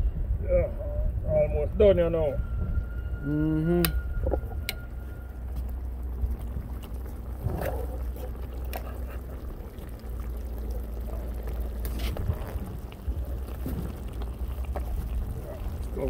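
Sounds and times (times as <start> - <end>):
steady low rumble: 0.0 - 16.0
broth pouring over fish: 5.0 - 16.0.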